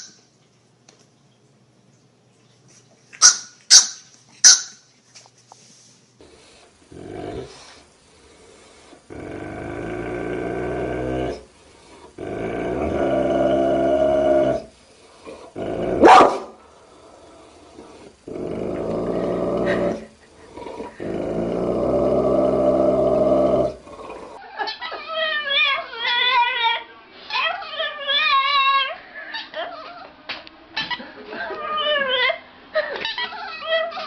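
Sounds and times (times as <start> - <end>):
cat growling: 6.9 - 7.8, 8.7 - 16.1, 16.8 - 24.4.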